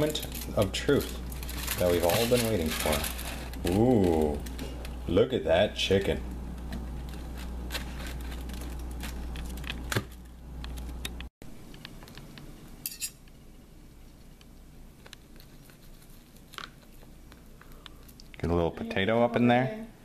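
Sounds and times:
low hum: 0.0s - 11.7s
cutlery clink: 12.8s - 13.2s.

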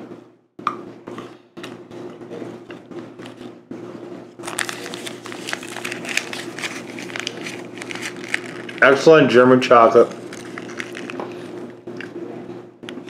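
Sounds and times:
foil wrapper crinkling: 4.4s - 11.8s.

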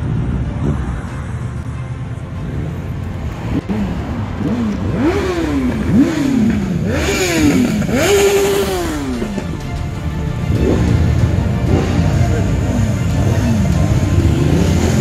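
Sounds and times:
motorcycle engines rumbling: 0.0s - 15.0s
motorcycle throttle revs: 3.5s - 9.7s, 10.4s - 15.0s.

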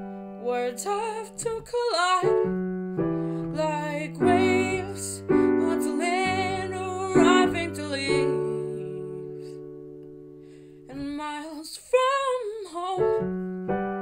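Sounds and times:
piano chords on keyboard: 0.0s - 14.0s
woman singing wordlessly: 0.4s - 2.6s, 3.4s - 9.6s, 10.9s - 13.5s.

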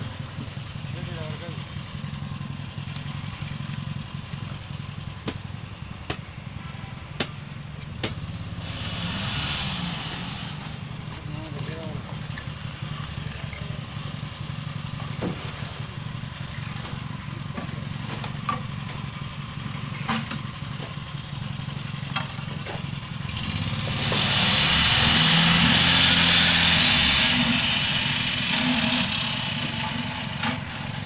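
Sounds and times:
sharp knocks: 7.2s - 7.4s, 8.0s - 8.2s
small engine running: 8.2s - 31.0s
loud steady hiss: 8.6s - 10.8s.

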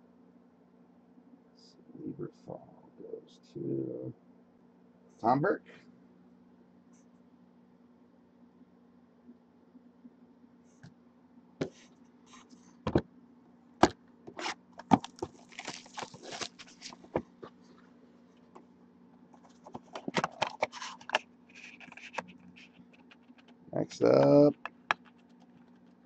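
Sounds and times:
cardboard box rustling: 14.4s - 17.3s
plastic wrap snapping: 14.8s - 17.0s
plastic wrap crinkling: 14.8s - 17.2s.

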